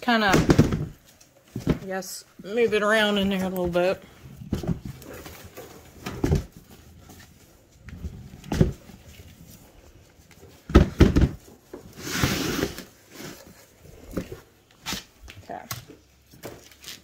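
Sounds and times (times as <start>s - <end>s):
tyre scraping on concrete: 11.0s - 15.2s.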